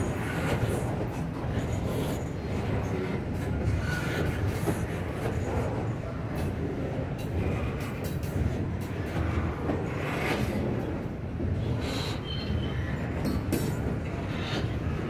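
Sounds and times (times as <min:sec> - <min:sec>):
train wheels rumbling on rails: 0:00.0 - 0:15.0
faint high squeal: 0:12.0 - 0:13.0.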